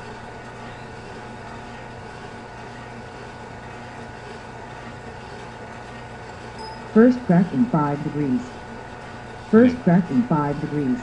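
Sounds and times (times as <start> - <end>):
coffee roaster whirring: 0.0 - 7.0.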